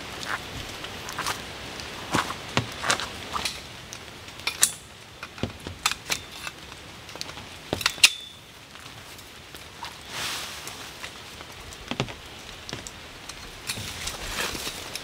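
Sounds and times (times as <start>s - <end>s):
metal tent poles clinking: 4.4s - 6.6s, 7.7s - 8.5s, 13.2s - 15.0s.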